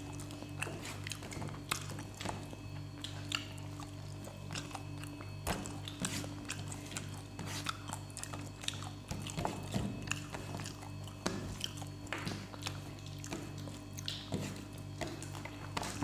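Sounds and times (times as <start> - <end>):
chewing and lip smacks: 0.0 - 16.0
steady low hum: 0.0 - 16.0.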